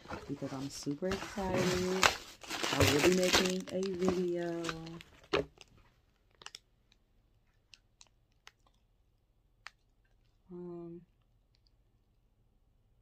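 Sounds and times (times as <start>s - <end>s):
packaging handling clicks: 6.3s - 7.0s.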